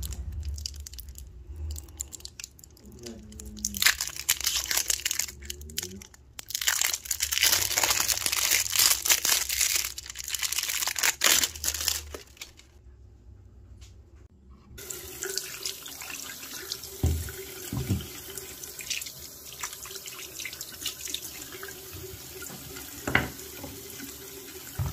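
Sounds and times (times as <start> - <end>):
plastic wrap crinkling: 0.0 - 12.8
tap running into sink: 16.9 - 18.2, 21.9 - 23.9.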